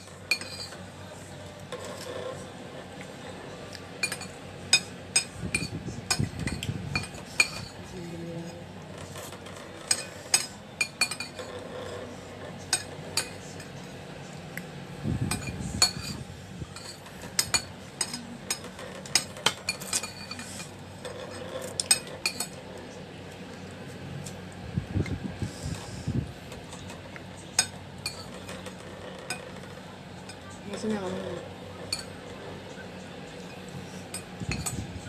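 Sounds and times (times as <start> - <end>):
cutlery clinking on plate: 0.0 - 0.8, 4.0 - 7.8, 9.0 - 12.0, 15.3 - 22.6, 26.7 - 30.8, 31.8 - 32.2, 33.4 - 34.8.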